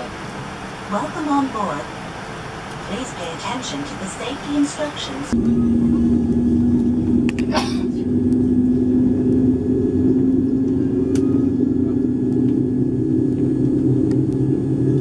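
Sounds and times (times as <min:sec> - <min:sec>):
jet engine spooling up: 0:05.3 - 0:15.0.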